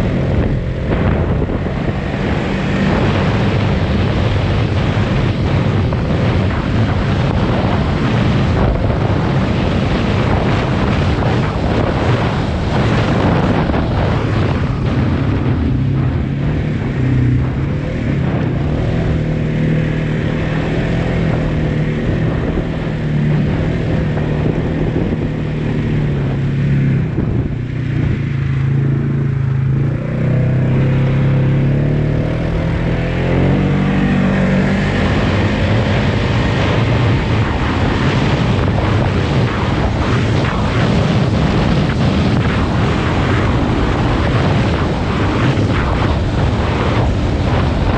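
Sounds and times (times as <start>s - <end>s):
atv engine running: 0.0s - 47.9s
wind noise: 0.0s - 47.9s.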